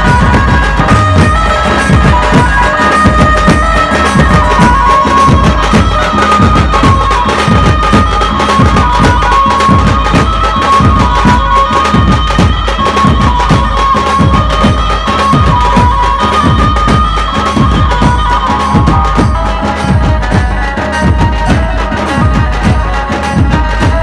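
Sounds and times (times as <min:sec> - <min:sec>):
barrel drums beaten fast: 0:00.0 - 0:24.0
reedy held melody: 0:00.0 - 0:24.0.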